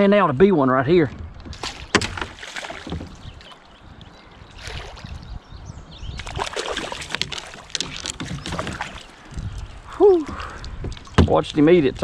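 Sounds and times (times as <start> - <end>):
fish splashing in water: 1.6 - 3.8, 4.5 - 5.2, 6.2 - 9.6.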